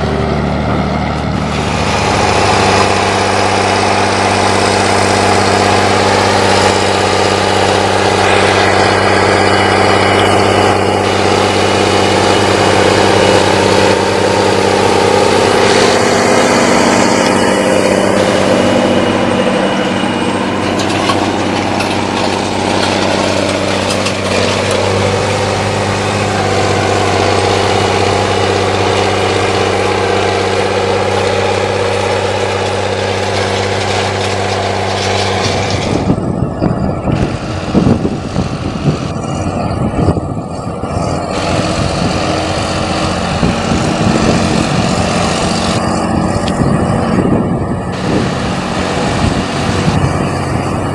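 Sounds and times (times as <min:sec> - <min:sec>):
tractor diesel engine under load: 0:00.0 - 0:50.9.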